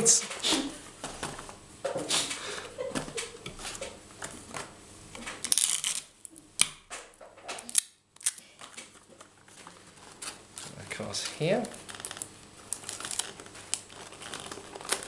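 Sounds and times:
paper rustling: 0:08.6 - 0:15.0.

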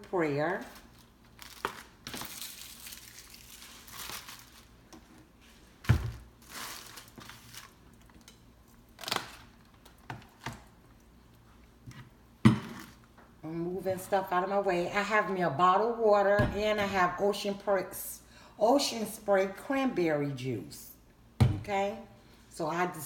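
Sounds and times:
plastic packaging crinkling: 0:00.6 - 0:05.1, 0:06.0 - 0:10.4.

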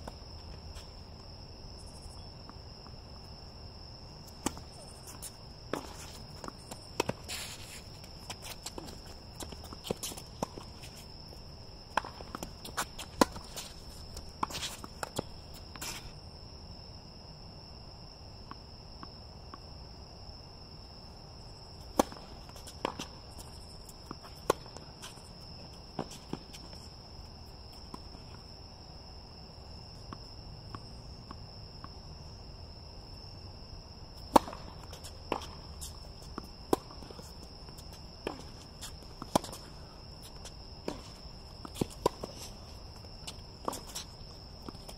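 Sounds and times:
crickets droning: 0:00.0 - 0:44.9
footsteps on court: 0:04.2 - 0:16.2, 0:21.8 - 0:28.5, 0:34.2 - 0:44.9.

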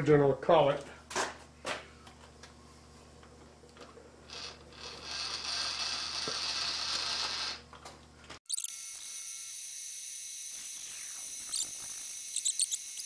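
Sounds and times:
high-pitched saw cutting metal: 0:08.5 - 0:13.0.

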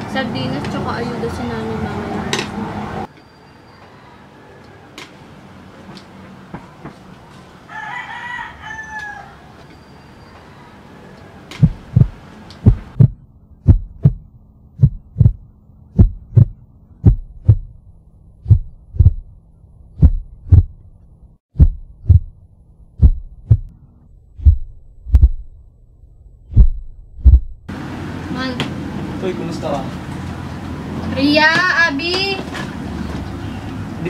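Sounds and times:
heartbeat thumps: 0:11.6 - 0:20.8, 0:21.5 - 0:23.7, 0:24.3 - 0:25.6, 0:26.5 - 0:27.7.

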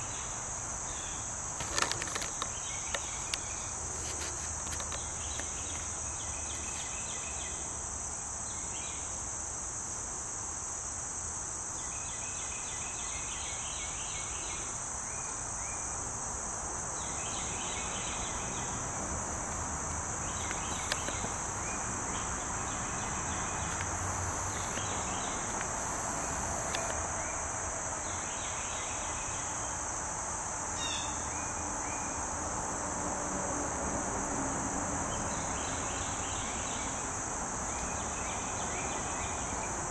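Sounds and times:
insect pulsed chirps: 0:00.0 - 0:09.8, 0:11.6 - 0:32.3
insect high-pitched trill: 0:00.0 - 0:32.8.

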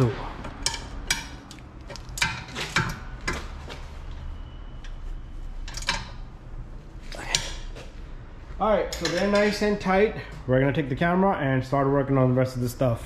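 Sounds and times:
wrench clinking on metal bolt: 0:08.9 - 0:09.7.

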